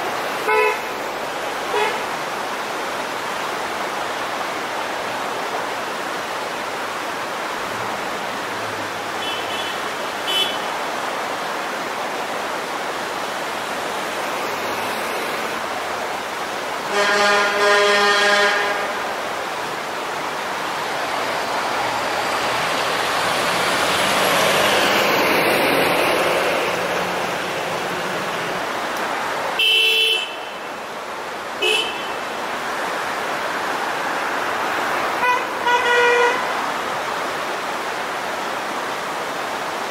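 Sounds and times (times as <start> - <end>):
creek rushing: 0.0 - 39.9
car horns honking: 0.4 - 0.9, 1.7 - 2.0, 9.2 - 10.8, 16.9 - 19.1, 29.6 - 30.6, 31.6 - 32.2, 35.2 - 36.5
car driving past: 20.7 - 28.6.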